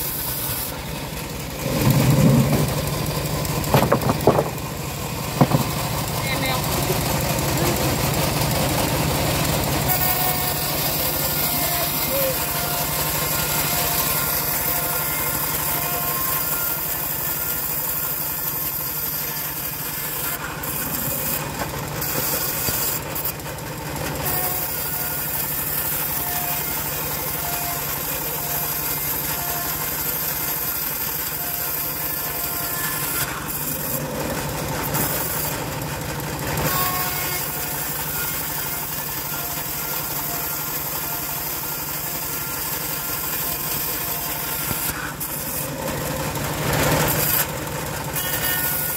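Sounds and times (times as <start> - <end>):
bandsaw mill humming: 0.0 - 48.9
saw blade cutting wood: 0.0 - 48.9.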